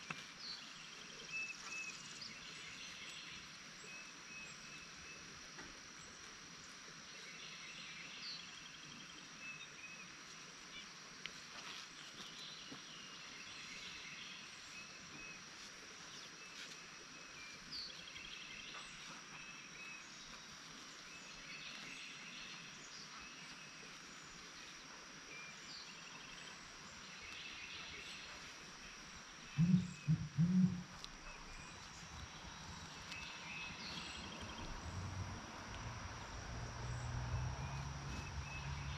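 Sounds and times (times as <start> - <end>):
insect drone: 0.0 - 38.9
birds trilling: 29.6 - 30.9
loud low thuds: 29.6 - 30.9.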